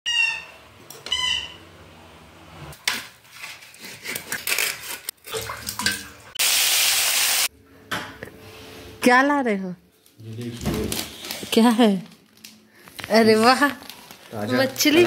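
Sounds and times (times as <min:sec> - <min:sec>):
knife scraping fish on steel plate: 0:03.4 - 0:05.1.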